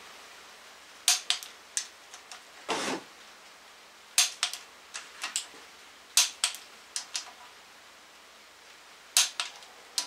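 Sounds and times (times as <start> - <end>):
rustle: 0.0 - 10.0
ratchet clicks: 4.2 - 4.6, 6.2 - 7.4
torque wrench clicks: 4.2 - 4.6.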